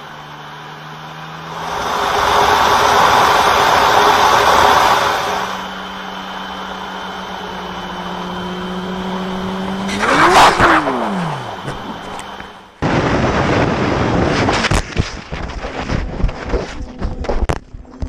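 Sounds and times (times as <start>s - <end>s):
motorcycle engine running: 0.0s - 12.9s
loud rush of noise: 1.2s - 8.0s, 12.8s - 16.0s
loud wind: 1.2s - 17.8s.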